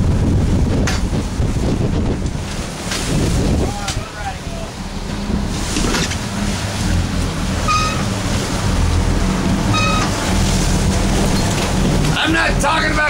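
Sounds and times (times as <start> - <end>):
boat engine running: 0.0 - 13.0
wind and sea noise: 0.0 - 13.0
short high beeps: 9.7 - 10.1.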